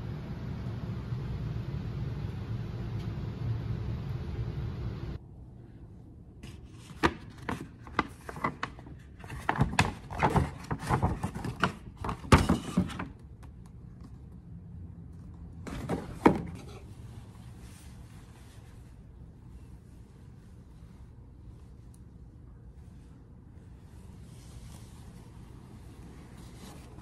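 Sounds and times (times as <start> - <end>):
paper bag rustling: 6.4 - 12.9
cloth rustling: 16.9 - 27.0.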